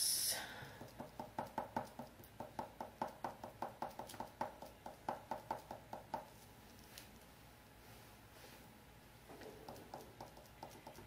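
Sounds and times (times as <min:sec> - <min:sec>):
fingertip patting on wood: 0:00.8 - 0:06.3, 0:09.6 - 0:11.0.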